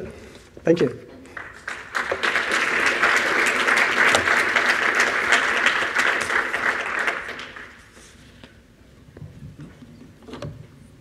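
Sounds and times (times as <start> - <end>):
audience applauding: 1.3 - 8.0.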